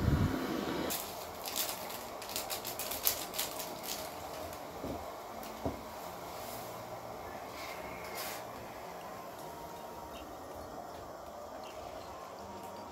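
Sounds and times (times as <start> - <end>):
plastic sachet crinkling: 0.9 - 4.8.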